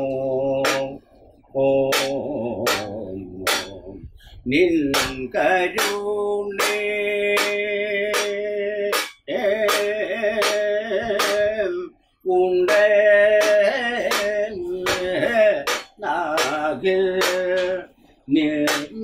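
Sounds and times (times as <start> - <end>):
man singing long phrases: 0.0 - 19.0
sharp beat: 0.6 - 1.0, 1.8 - 3.9, 4.9 - 11.6, 12.7 - 17.8, 18.6 - 19.0.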